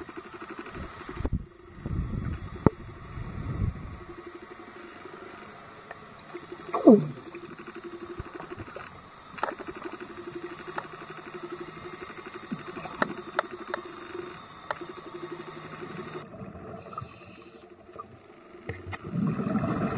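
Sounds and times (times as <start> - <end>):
pulsing underwater hum: 0.0 - 19.9
sharp underwater clicks: 6.7 - 15.9.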